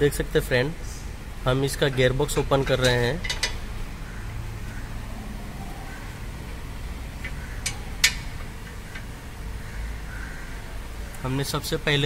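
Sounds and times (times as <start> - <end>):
low steady hum: 0.0 - 12.0
sharp metal clicks: 1.8 - 3.7, 6.4 - 9.2.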